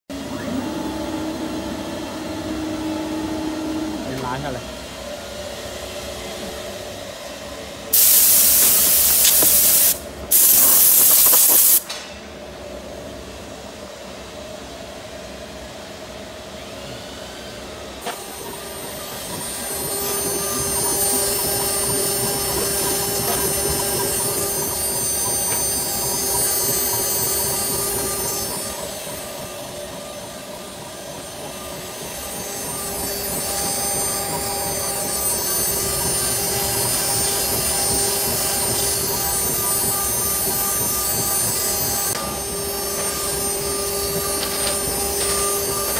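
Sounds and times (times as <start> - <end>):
hissing air bursts: 7.9 - 11.9
router spindle whining: 18.1 - 45.9.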